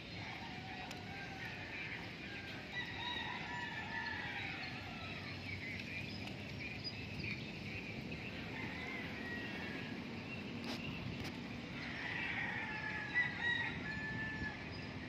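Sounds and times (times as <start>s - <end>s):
roosters crowing: 0.0s - 5.8s, 8.1s - 10.3s, 11.7s - 15.0s.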